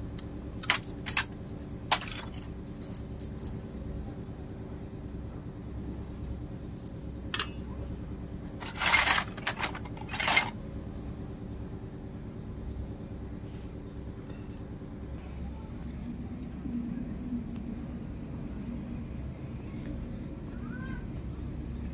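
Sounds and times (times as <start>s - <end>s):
steady low hum: 0.0s - 21.9s
small metal cups clinking: 0.3s - 3.4s, 7.3s - 7.6s, 8.5s - 10.6s.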